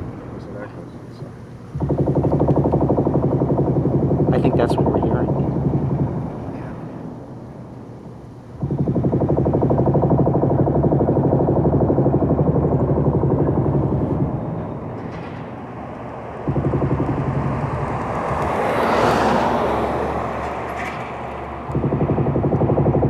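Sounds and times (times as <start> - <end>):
broad rushing noise: 0.0 - 23.0.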